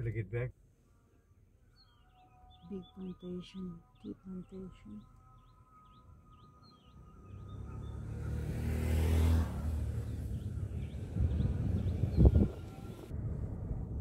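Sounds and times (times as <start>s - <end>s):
small birds chirping: 1.6s - 13.1s
vehicle engine and tyre noise: 5.4s - 14.0s.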